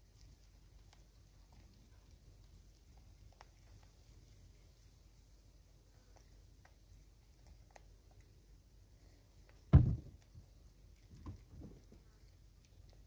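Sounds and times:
faint clicks of kernels: 0:00.0 - 0:13.0
dull thump: 0:09.7 - 0:10.2.

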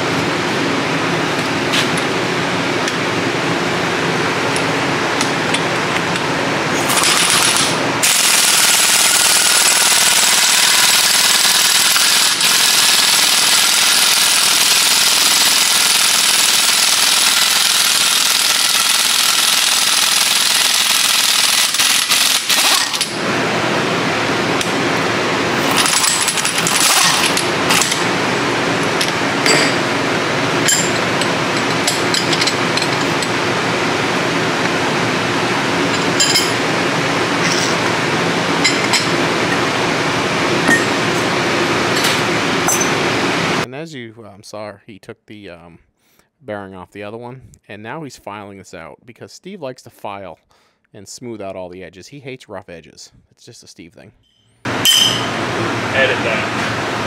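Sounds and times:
air impact wrench hammering: 0:04.5 - 0:23.2, 0:25.5 - 0:33.5, 0:35.9 - 0:36.7, 0:38.6 - 0:39.6, 0:40.6 - 0:41.3, 0:41.9 - 0:43.0, 0:54.6 - 0:55.4.

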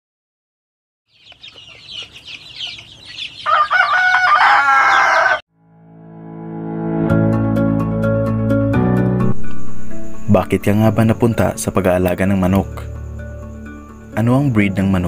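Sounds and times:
high chirping: 0:01.1 - 0:05.2
rooster crowing: 0:01.8 - 0:05.5
ambient music: 0:05.5 - 0:15.0.

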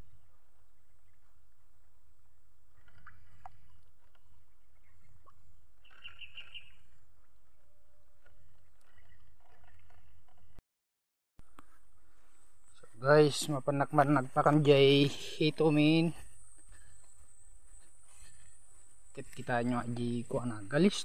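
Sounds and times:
faint bird calls: 0:02.7 - 0:07.6.

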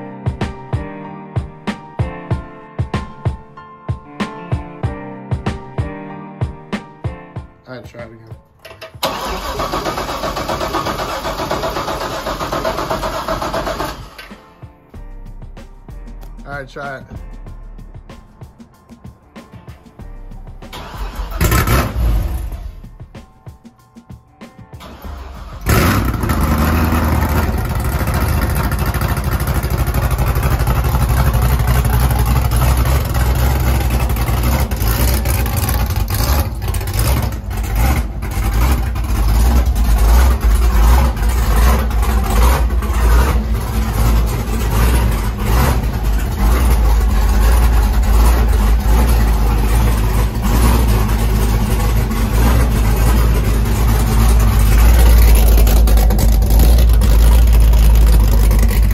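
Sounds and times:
car engine starting and idling: 0:08.6 - 0:14.6, 0:20.4 - 0:23.3, 0:24.8 - 0:58.9.

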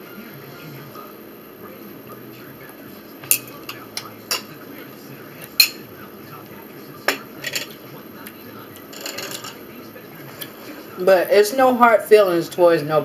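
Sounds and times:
fork clinking on ceramic plate: 0:03.2 - 0:04.6, 0:08.9 - 0:09.6.

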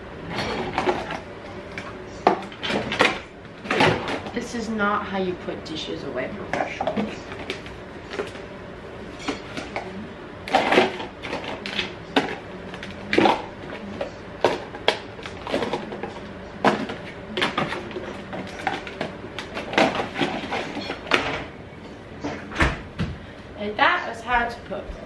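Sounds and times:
plastic containers clattering: 0:00.3 - 0:04.4, 0:09.2 - 0:21.5.

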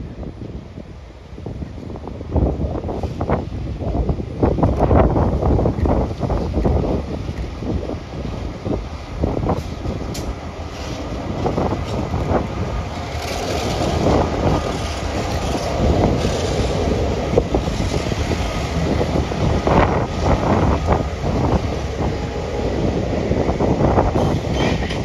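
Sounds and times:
diesel locomotive engines rumbling: 0:00.0 - 0:25.0
wheels clattering over rails: 0:09.4 - 0:22.6, 0:23.8 - 0:25.0.

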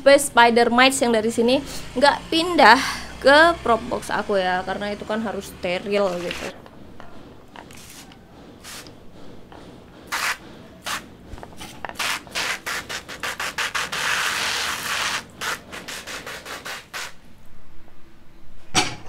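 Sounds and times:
hand pump sprayer swishing strokes: 0:05.7 - 0:06.6, 0:07.7 - 0:08.9, 0:10.1 - 0:17.2.

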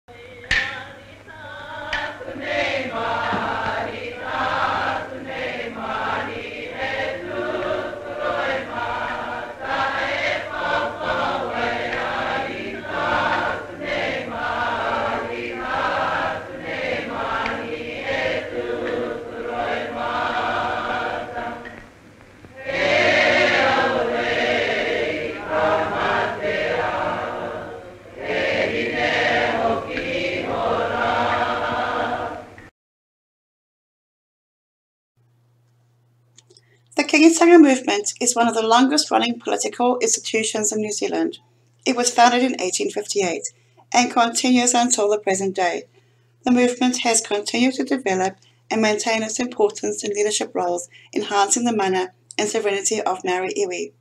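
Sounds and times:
choir singing: 0:00.2 - 0:21.9, 0:22.5 - 0:32.7.

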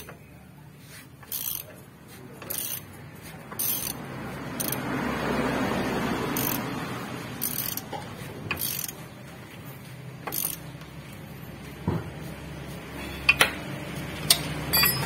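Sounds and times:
ratchet wrench clicking: 0:00.0 - 0:00.2, 0:01.2 - 0:01.8, 0:02.4 - 0:04.0, 0:04.6 - 0:04.8, 0:06.3 - 0:06.8, 0:07.4 - 0:09.0, 0:10.2 - 0:10.9.

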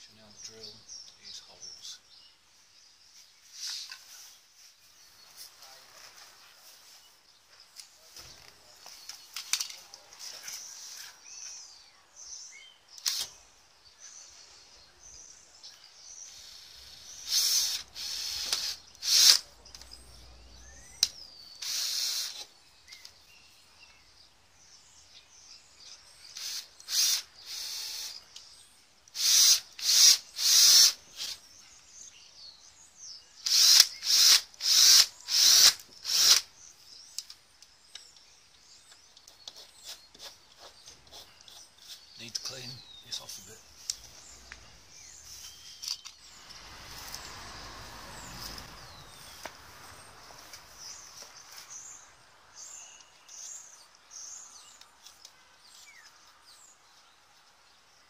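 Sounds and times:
cordless drill drilling: 0:16.3 - 0:19.4, 0:21.6 - 0:22.4, 0:26.4 - 0:28.2, 0:29.2 - 0:31.4, 0:33.4 - 0:36.5.

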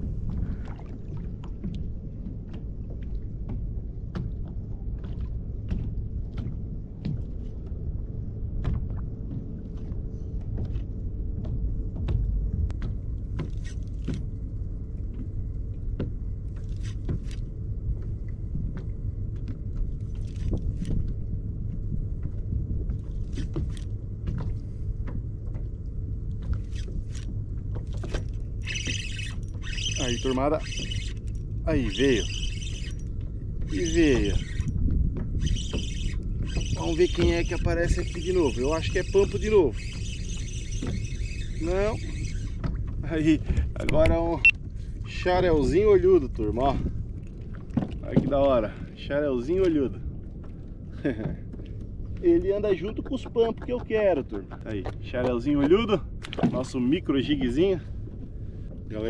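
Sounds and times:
low rumble: 0:00.0 - 0:28.7, 0:29.4 - 0:59.0
kayak clicks and knocks: 0:26.3 - 0:43.0, 0:43.7 - 0:44.2, 0:53.6 - 0:56.8.

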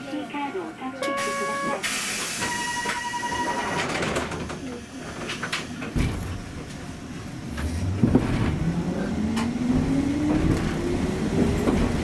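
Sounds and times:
tram motor whine: 0:00.6 - 0:12.0
tram running gear rumble: 0:03.6 - 0:12.0.

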